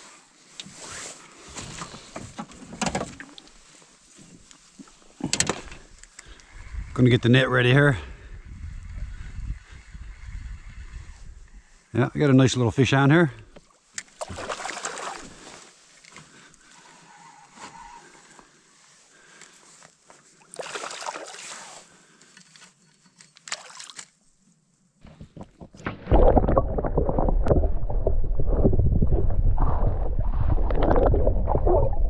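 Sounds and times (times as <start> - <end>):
fish splashing at surface: 14.2 - 15.4
muffled underwater rumble and slosh: 25.6 - 32.0.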